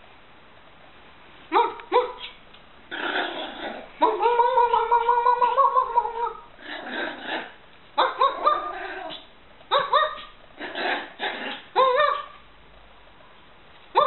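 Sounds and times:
puppy yipping: 0:01.5 - 0:02.4, 0:03.2 - 0:12.4
puppy play-growling: 0:02.2 - 0:09.3, 0:10.2 - 0:11.9.

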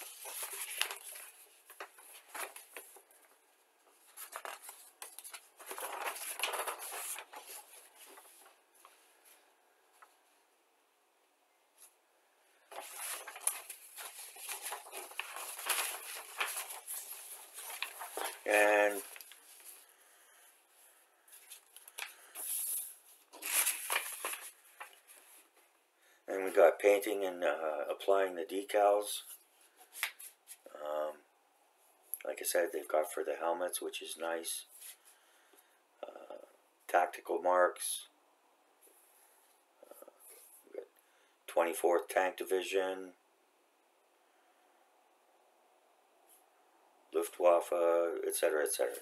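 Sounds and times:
paper rustling: 0:00.0 - 0:10.2, 0:12.7 - 0:20.0, 0:20.8 - 0:25.7, 0:29.2 - 0:30.7.

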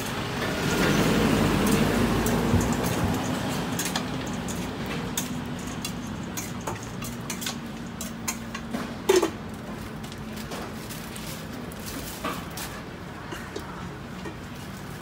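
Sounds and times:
metal spoon clinking on metal bowl: 0:01.6 - 0:09.4.

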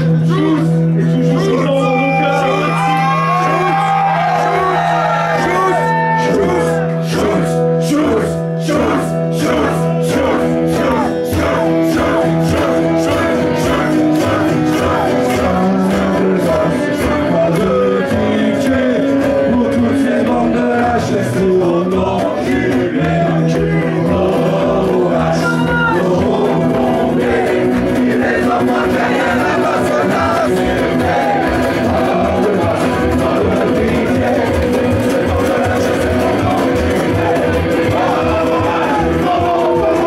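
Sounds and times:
electric guitars: 0:00.0 - 0:40.0
voices singing: 0:00.0 - 0:40.0
steady drum beat: 0:08.8 - 0:40.0.

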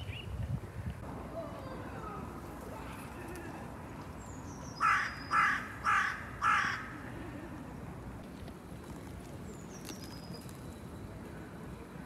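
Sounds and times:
crow cawing: 0:04.8 - 0:07.0.

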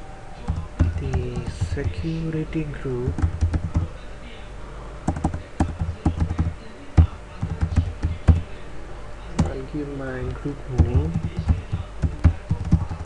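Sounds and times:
keyboard typing clicks: 0:05.1 - 0:06.5.

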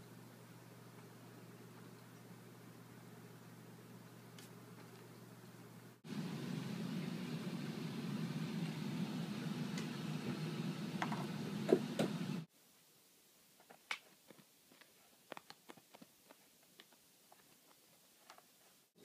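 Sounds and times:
low hum: 0:00.0 - 0:12.5.

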